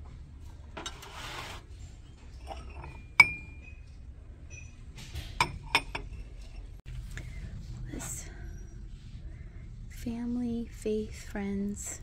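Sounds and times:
dish scraping on shelf: 0.7s - 3.7s
ceramic dishes clinking: 2.4s - 3.9s, 5.4s - 6.7s.

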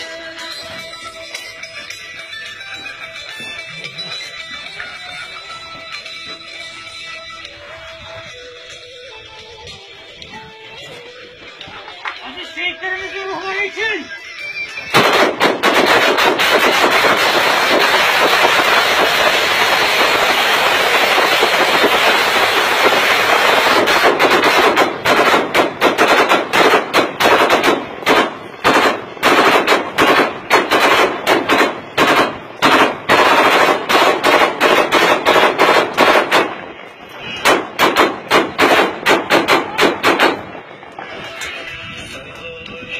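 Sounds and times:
rifle gunshots: 14.9s - 40.6s.

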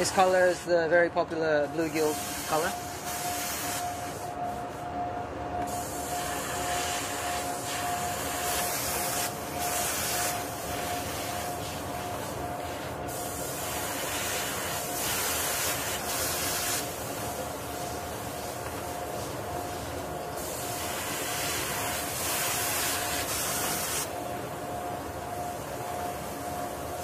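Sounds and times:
airbrush spraying: 1.8s - 4.8s, 5.7s - 24.1s.

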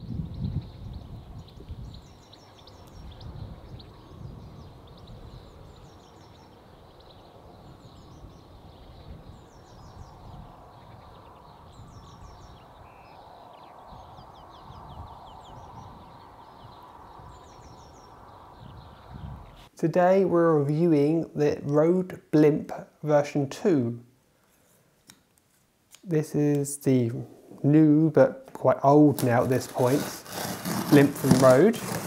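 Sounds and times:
songbirds trilling: 0.0s - 19.7s
wind rumble on microphone: 0.0s - 19.7s.

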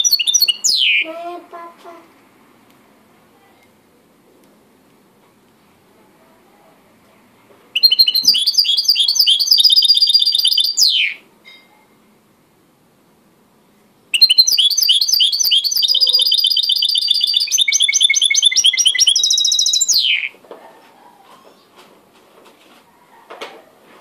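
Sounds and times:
songbird singing fast trills: 0.0s - 1.1s, 7.8s - 11.2s, 14.1s - 20.3s.

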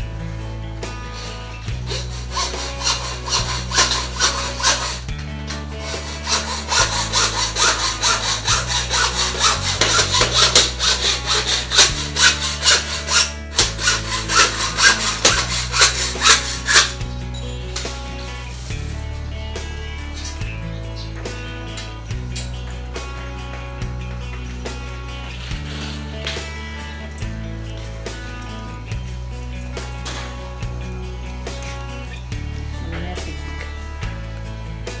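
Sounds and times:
background music with bass line: 0.0s - 35.0s
hand saw cutting: 1.1s - 17.1s, 25.2s - 26.5s.

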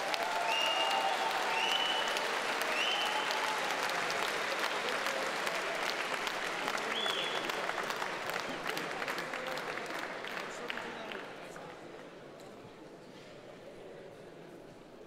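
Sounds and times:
audience applauding: 0.0s - 11.9s.

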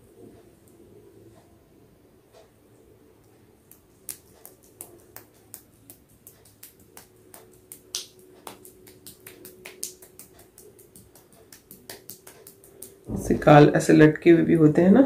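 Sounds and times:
faint steady hum: 0.0s - 15.0s
wet skin pats and clicks: 3.6s - 13.1s.

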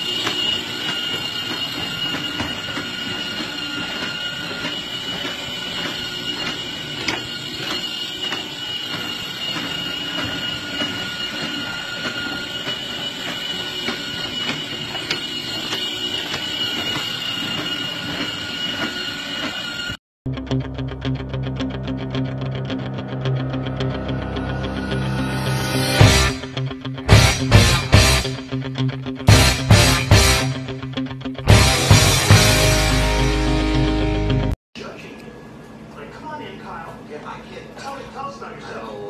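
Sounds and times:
track clicks: 0.0s - 19.6s
electric motor and gear whine: 0.0s - 20.0s.

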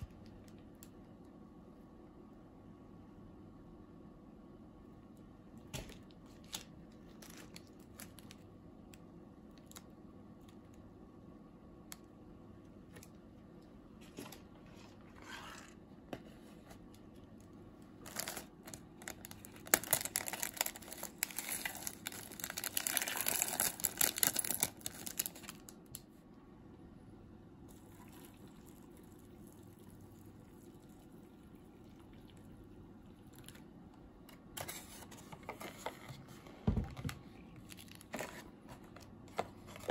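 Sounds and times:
plastic sachet crinkling: 5.8s - 8.5s, 17.9s - 26.0s, 37.4s - 39.9s.

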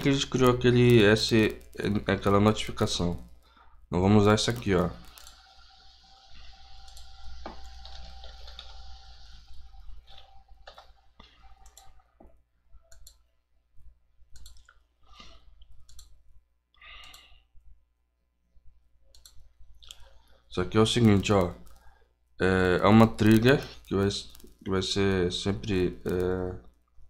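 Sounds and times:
computer mouse clicks: 4.2s - 13.3s, 14.3s - 16.2s, 16.9s - 17.4s, 19.1s - 20.2s, 20.9s - 21.9s, 23.0s - 24.7s.

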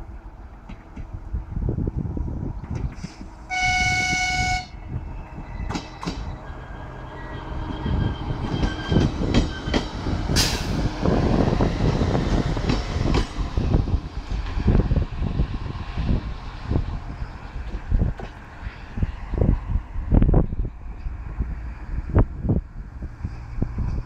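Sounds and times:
train running past: 0.0s - 24.0s
train horn blast: 3.5s - 4.9s.

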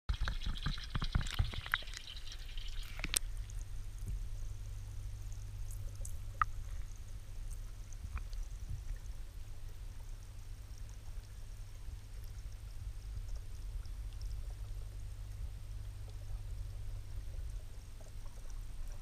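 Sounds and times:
water splashing from hose: 0.1s - 3.2s
muffled underwater rumble: 0.1s - 19.0s.

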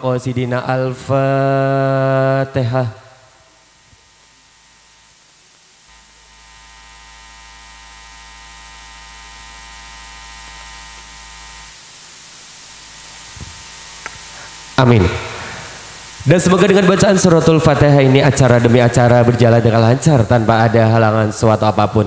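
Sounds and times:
electrical buzz and hiss: 0.0s - 22.0s
low hum: 3.1s - 20.4s.

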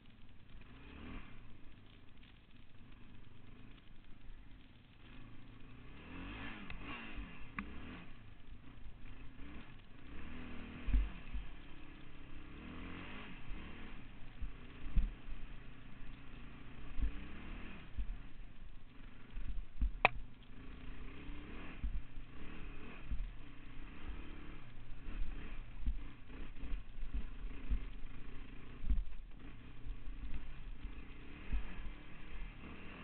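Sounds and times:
quad engine revving: 0.1s - 3.8s, 5.0s - 33.0s
low thumps: 13.4s - 20.7s, 21.7s - 32.6s
sharp click: 19.8s - 20.5s.

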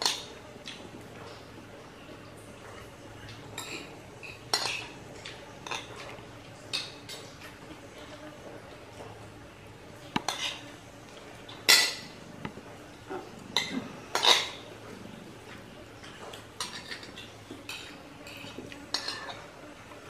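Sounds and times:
spoons clinking on plates: 2.7s - 7.6s, 11.5s - 12.2s, 13.5s - 14.7s, 16.0s - 19.6s.

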